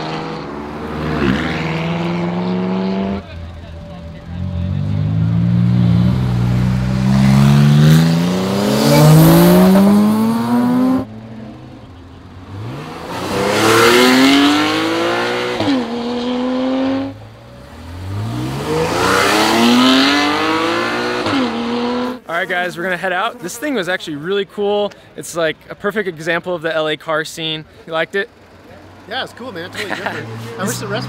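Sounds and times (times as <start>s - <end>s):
sports cars accelerating hard: 0.0s - 3.5s, 4.2s - 22.2s, 29.5s - 31.0s.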